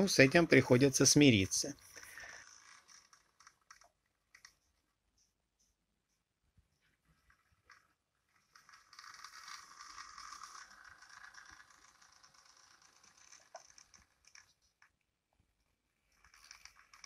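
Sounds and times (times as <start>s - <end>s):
model locomotive motor rattling: 0.0s - 4.6s, 7.2s - 14.9s, 16.0s - 17.0s.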